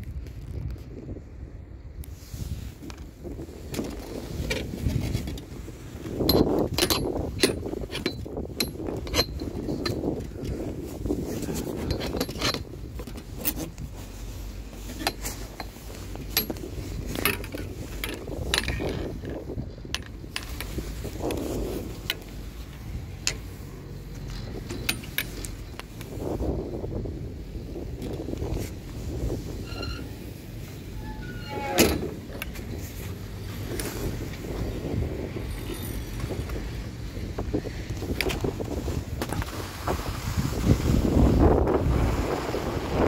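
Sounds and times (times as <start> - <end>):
low rumbling rush: 0.0 - 43.0
chairlift clicks and clanks: 2.8 - 26.6.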